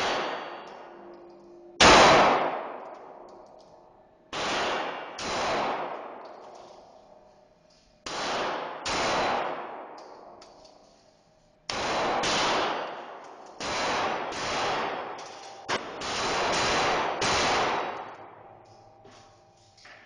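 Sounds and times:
pistol shots reverberating: 0.0s - 1.0s, 1.8s - 3.7s, 4.3s - 7.2s, 8.0s - 10.4s, 11.7s - 18.9s.

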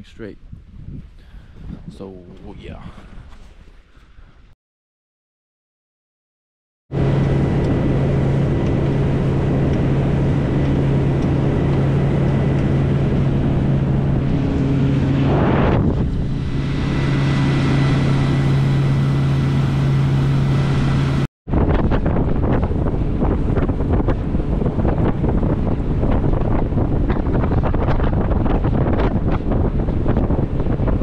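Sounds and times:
wind buffeting microphone: 0.0s - 4.4s, 7.0s - 31.0s
outboard motor drone: 6.9s - 31.0s
water rushing past hull: 7.0s - 31.0s.

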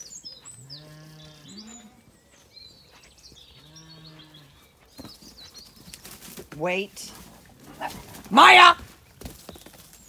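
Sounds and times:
small birds chirping: 0.0s - 7.3s.

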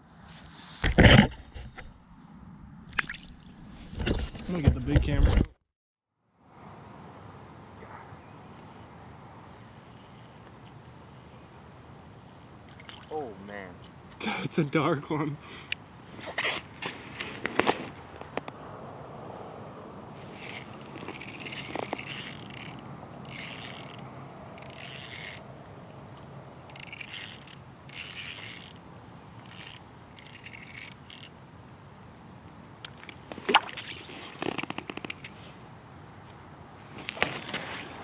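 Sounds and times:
fishing reel whirring: 8.3s - 12.6s, 20.4s - 25.5s, 26.7s - 31.4s.

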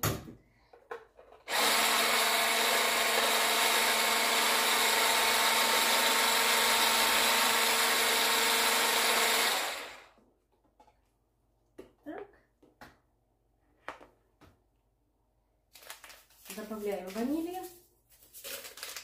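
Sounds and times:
stick blender motor hum: 1.5s - 10.2s.

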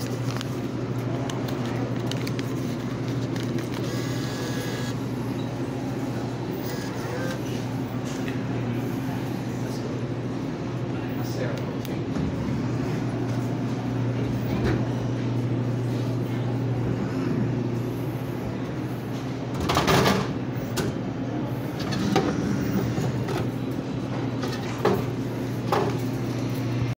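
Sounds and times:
vending machine hum: 0.0s - 26.9s.

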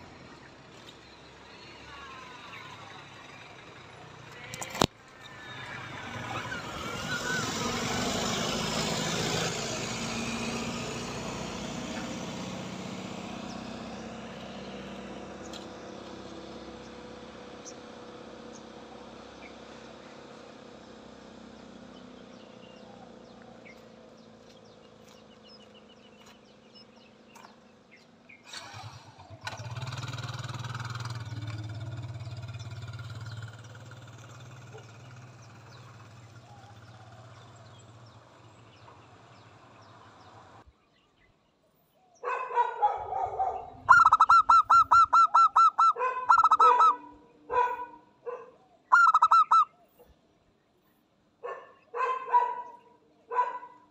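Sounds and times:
dove cooing: 43.2s - 48.0s, 48.9s - 49.7s.

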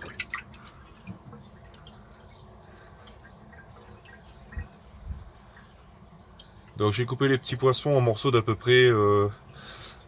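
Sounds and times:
water dripping and splashing: 0.0s - 7.7s.

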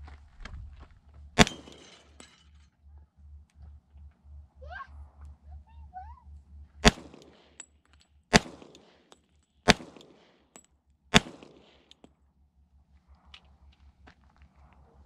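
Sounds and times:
pistol shots: 1.4s - 2.0s, 6.8s - 7.6s, 8.3s - 10.4s, 11.1s - 12.1s.

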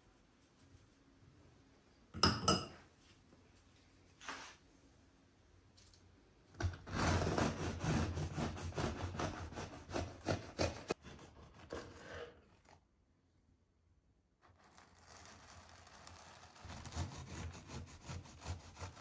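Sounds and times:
knife sawing through crusty bread: 6.9s - 12.7s, 14.5s - 19.0s.

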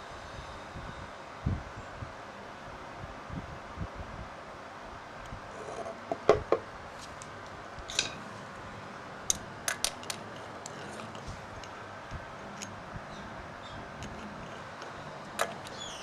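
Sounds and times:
steady hiss: 0.0s - 16.0s
small hard parts clicking: 9.3s - 12.8s, 13.9s - 16.0s.

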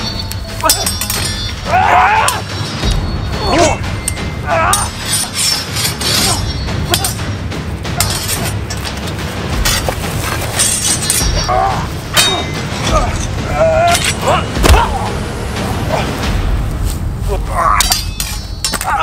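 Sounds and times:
low background music: 0.0s - 19.0s
swords clashing: 0.1s - 7.3s, 7.9s - 15.0s, 17.4s - 19.0s
grunts and cries of effort: 11.4s - 16.3s.

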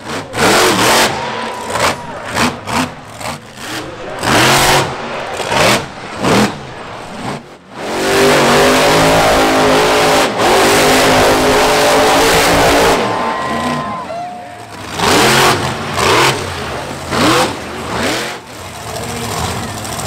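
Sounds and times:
monster truck engine revving: 0.0s - 20.0s.

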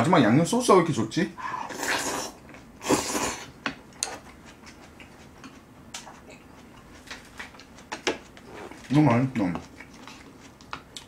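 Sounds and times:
slurping noodles: 1.6s - 3.5s
chewing: 3.9s - 8.9s, 9.5s - 11.0s.

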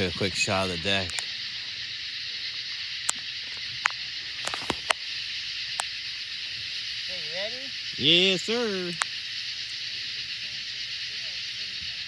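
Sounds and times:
distant fireworks popping: 0.0s - 6.9s
night insect chorus: 0.0s - 12.0s.

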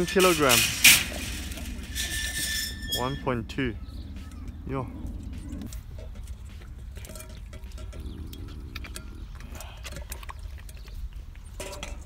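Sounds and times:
animal chewing and crunching: 3.8s - 12.0s.

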